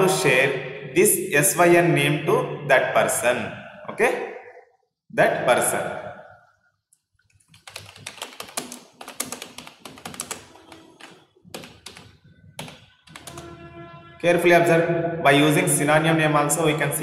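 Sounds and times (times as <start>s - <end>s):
keyboard typing: 6.9s - 13.6s.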